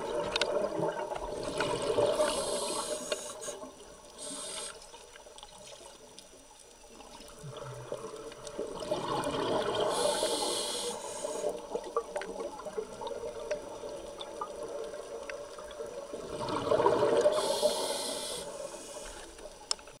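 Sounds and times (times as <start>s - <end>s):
diver breathing through regulator: 2.1s - 4.8s, 9.8s - 11.6s, 17.1s - 19.3s
sharp hiss: 2.2s - 4.9s, 9.9s - 11.6s, 17.3s - 19.3s
faint clicks: 2.4s - 7.3s, 17.3s - 20.0s.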